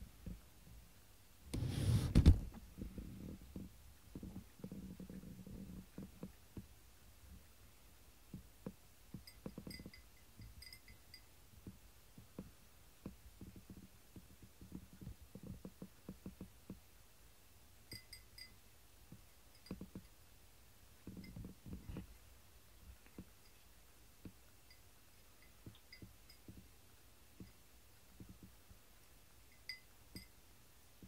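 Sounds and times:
light high tinkling: 9.2 - 11.4, 17.8 - 18.7, 19.3 - 20.3, 21.0 - 22.2, 23.0 - 23.9, 24.5 - 26.8, 27.4 - 27.8, 29.4 - 30.5.

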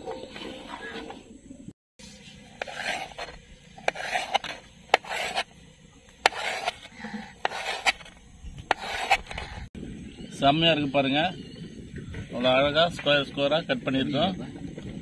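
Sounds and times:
knife scraping through egg: 2.5 - 5.5, 6.2 - 9.7.

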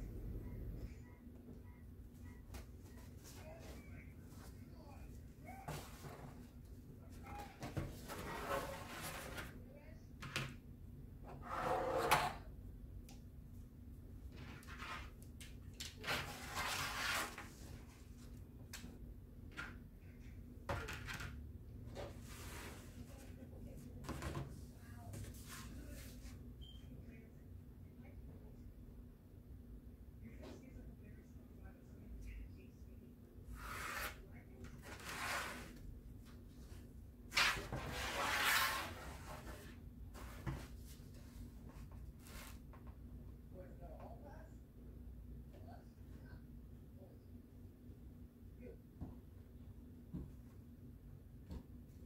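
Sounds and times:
board scraping: 11.3 - 12.4, 37.4 - 39.5
ruler and board sliding on table: 11.3 - 12.4.

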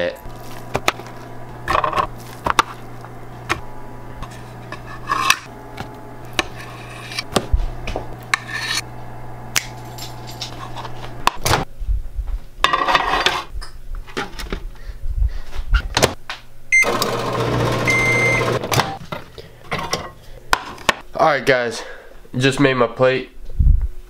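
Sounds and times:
metal fork scraping plates: 4.2 - 5.5, 6.4 - 7.3, 8.3 - 8.8.

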